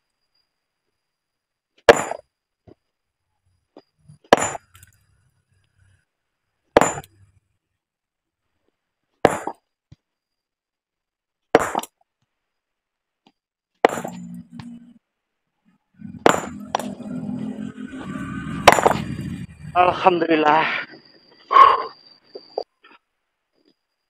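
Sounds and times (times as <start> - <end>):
hammer striking stone: 1.9 - 2.3, 4.2 - 5.0, 6.7 - 7.2, 9.2 - 9.7, 11.6 - 12.0, 13.8 - 14.4, 16.1 - 17.0, 18.7 - 19.1.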